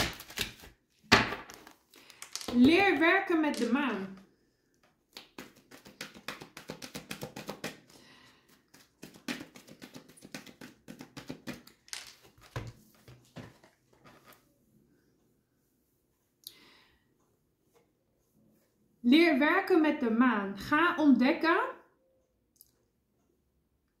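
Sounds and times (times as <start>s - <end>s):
cards clicking and rustling: 0.0s - 2.8s, 5.1s - 14.2s.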